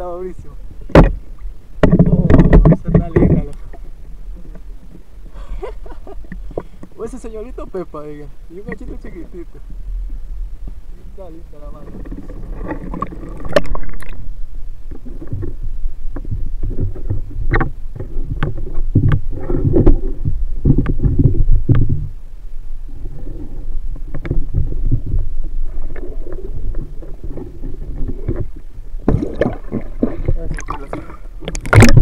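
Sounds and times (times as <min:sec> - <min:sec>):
underwater rumbling surges: 0:00.0 - 0:32.0
sharp underwater clicks: 0:12.0 - 0:14.3, 0:29.1 - 0:32.0.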